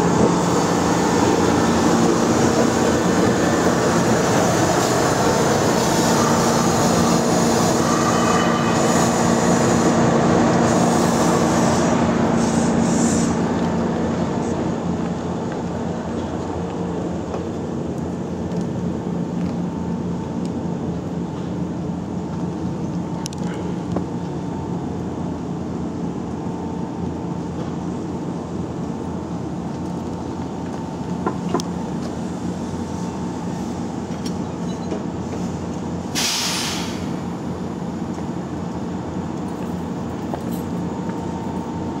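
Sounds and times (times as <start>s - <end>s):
train equipment humming: 0.0s - 42.0s
air release hiss: 10.7s - 13.4s, 36.1s - 37.3s.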